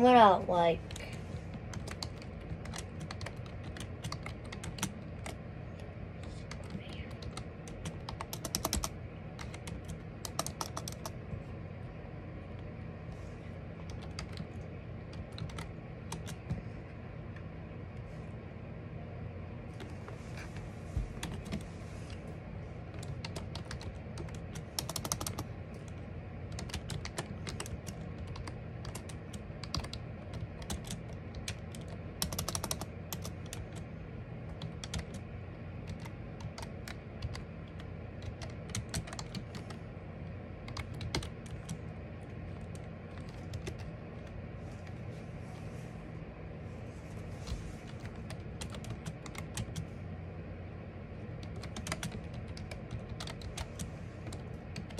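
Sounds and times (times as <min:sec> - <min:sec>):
steady low hum: 0:00.0 - 0:54.9
keyboard typing: 0:00.5 - 0:11.4, 0:13.8 - 0:16.6, 0:19.7 - 0:21.7, 0:22.8 - 0:45.0, 0:47.5 - 0:49.9, 0:51.3 - 0:54.9.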